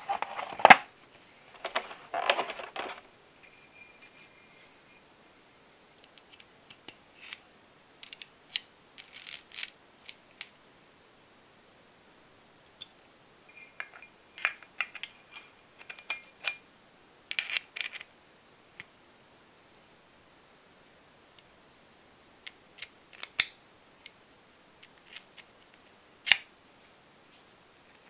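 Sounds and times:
small metal parts clinking: 8.0s - 9.8s, 17.3s - 18.1s.

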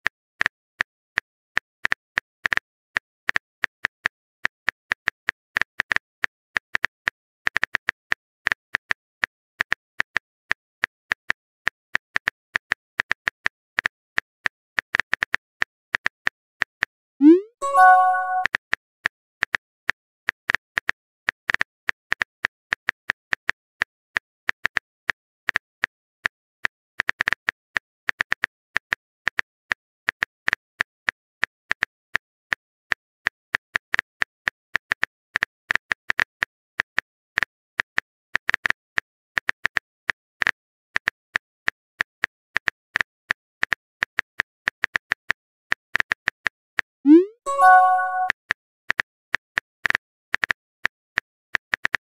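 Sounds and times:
phone keyboard typing clicks: 17.2s - 18.5s, 47.1s - 48.3s.

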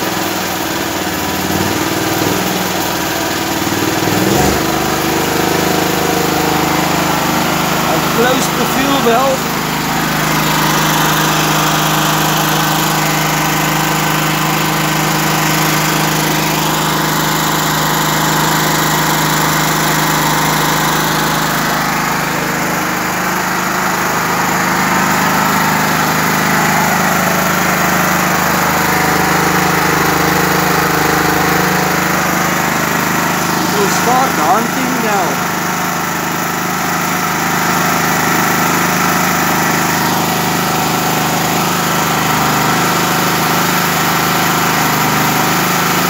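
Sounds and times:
generator engine running: 0.0s - 46.0s.

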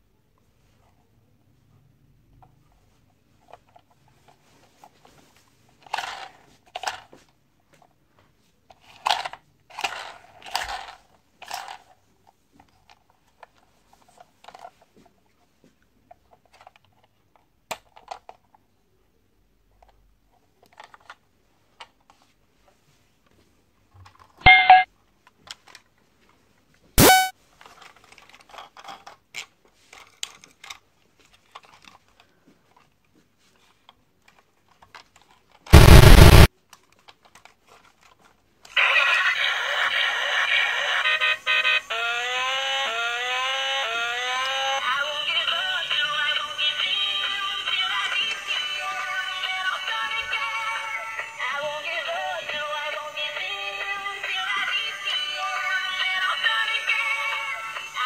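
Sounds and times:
plastic toy cars clattering: 3.4s - 8.0s, 8.7s - 15.1s, 16.0s - 18.6s, 19.7s - 21.2s, 23.9s - 24.4s, 25.2s - 25.9s, 27.5s - 35.7s, 36.6s - 38.8s
short electronic beeps: 24.5s - 24.9s, 27.0s - 27.3s.

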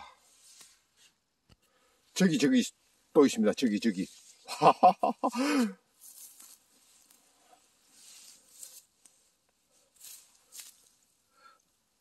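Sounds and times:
man speaking: 2.2s - 4.2s
rustling of dry leaves: 5.9s - 11.2s.

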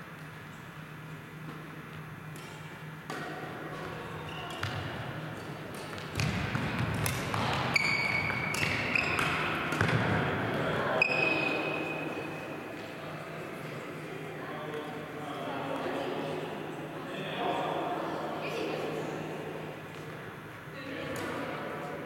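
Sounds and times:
racket hitting shuttlecock: 2.2s - 3.9s, 4.5s - 10.2s
shoes squeaking on floor: 7.7s - 9.5s.

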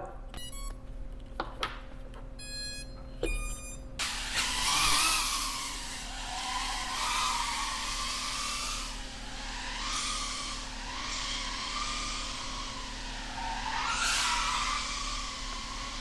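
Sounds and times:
motor beeps: 0.4s - 0.8s, 2.4s - 3.9s
drone propellers whining: 3.2s - 16.0s.

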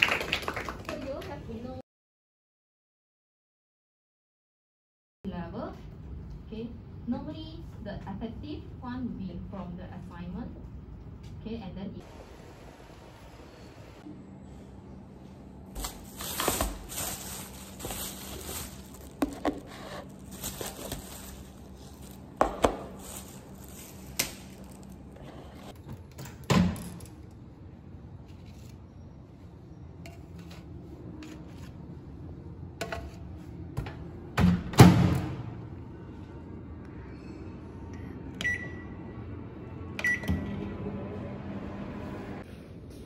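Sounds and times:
plastic bag rustling: 15.7s - 25.2s
low steady hum: 35.4s - 43.0s.

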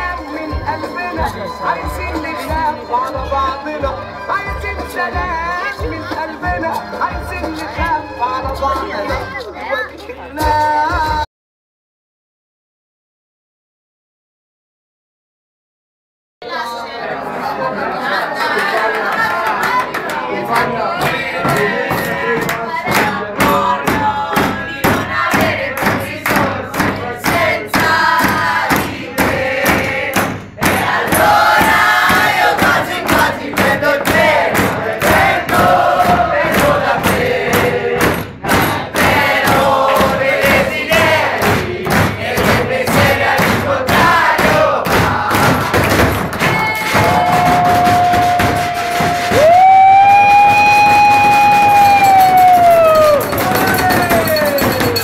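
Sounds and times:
group singing and chanting: 16.5s - 49.5s
steady beat of sharp strokes: 20.5s - 49.7s.

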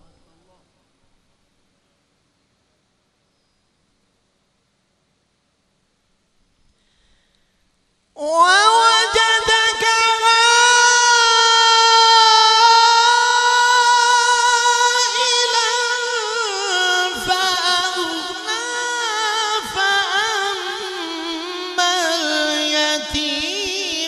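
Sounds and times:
man reciting melodically: 8.2s - 24.0s.

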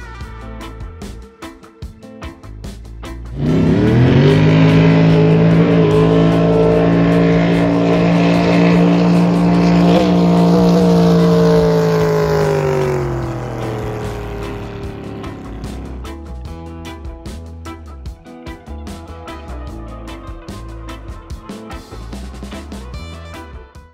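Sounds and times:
jet boat engine at full throttle: 3.4s - 16.1s.

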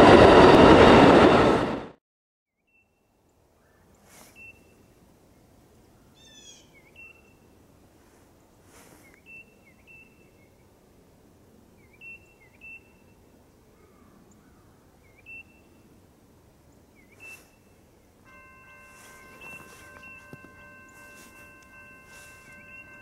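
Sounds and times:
bird chirping: 2.6s - 7.6s, 8.5s - 10.6s, 11.8s - 16.0s, 16.7s - 23.0s
locomotive air horn: 18.3s - 23.0s.

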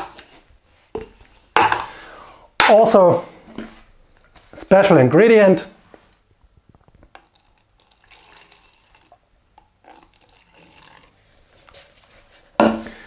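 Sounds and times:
liquid trickling into cups: 7.0s - 11.8s.

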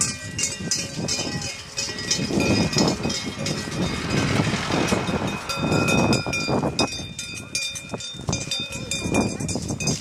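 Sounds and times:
car driving past: 3.0s - 6.5s.

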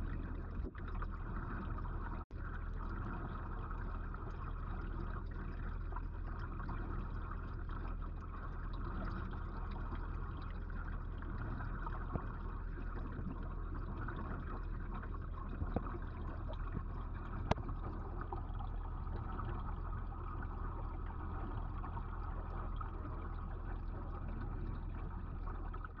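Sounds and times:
low hum: 0.0s - 26.0s
underwater water circulating: 0.0s - 26.0s.

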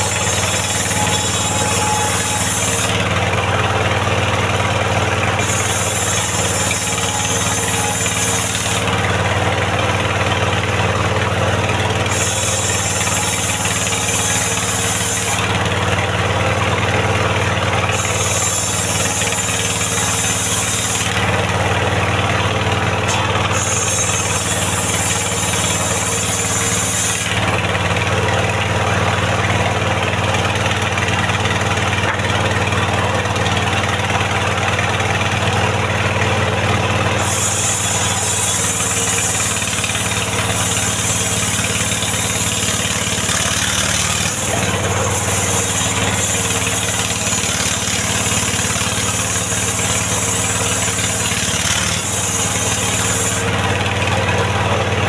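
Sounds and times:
saw hissing through log: 0.0s - 10.6s, 11.2s - 15.8s, 17.7s - 21.4s, 22.2s - 36.0s, 36.9s - 54.3s
engine drone: 0.0s - 55.0s.

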